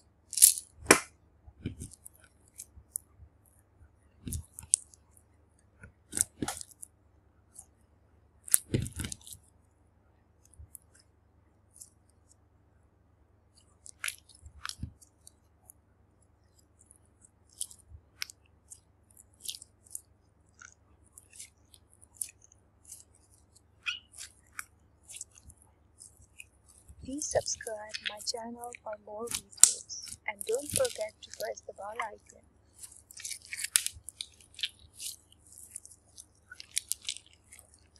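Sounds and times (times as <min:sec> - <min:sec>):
slime clicking and popping: 0:32.8 - 0:37.9.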